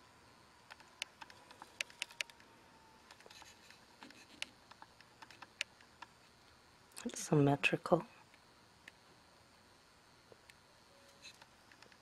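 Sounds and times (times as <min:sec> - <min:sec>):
faint steady whine: 0:00.0 - 0:12.0
small clicks and ticks: 0:00.6 - 0:07.1, 0:11.2 - 0:12.0.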